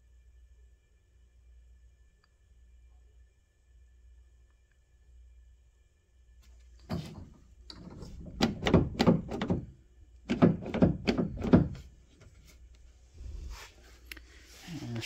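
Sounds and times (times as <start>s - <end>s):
car door thumping and knocking: 6.8s - 11.9s.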